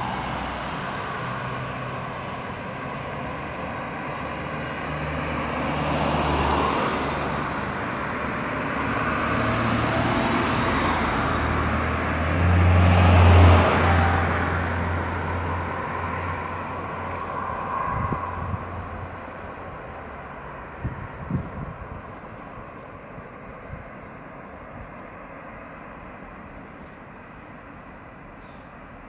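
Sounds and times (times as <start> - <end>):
car passing close by: 0.0 - 22.6
car engines and tyre noise: 0.0 - 29.0.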